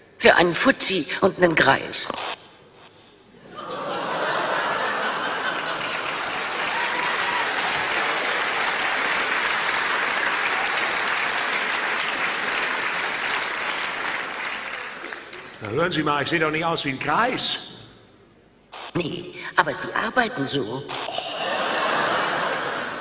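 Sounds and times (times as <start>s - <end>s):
audience applause: 4.0s - 15.8s.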